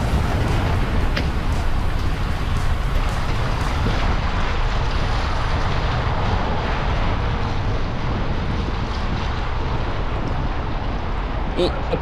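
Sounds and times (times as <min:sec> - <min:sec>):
tyres hissing on wet road: 0:00.0 - 0:11.0
wind buffeting microphone: 0:00.0 - 0:12.0.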